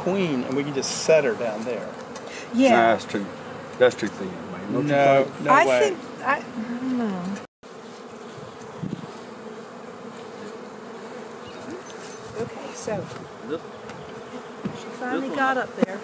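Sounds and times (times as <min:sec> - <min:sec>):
honey bees buzzing: 0:00.0 - 0:16.0
bees flying close past: 0:00.1 - 0:16.0.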